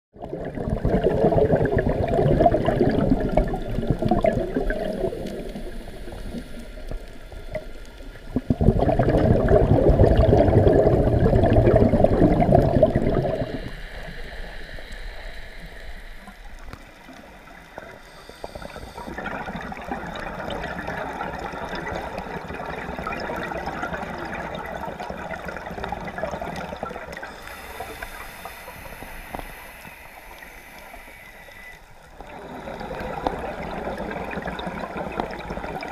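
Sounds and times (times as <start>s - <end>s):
underwater regulator bubbles: 0.2s - 35.9s.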